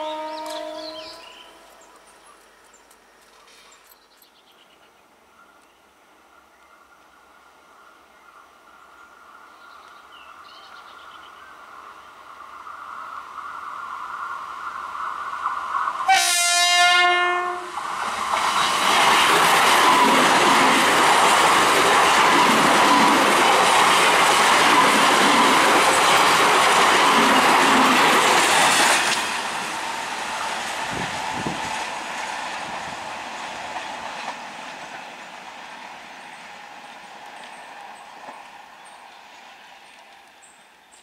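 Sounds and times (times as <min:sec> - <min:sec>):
train horn blast: 0:00.0 - 0:01.8, 0:16.1 - 0:17.8
distant train rumble: 0:00.0 - 0:04.0, 0:04.8 - 0:40.9
train wheels clacking over rails: 0:17.7 - 0:40.3.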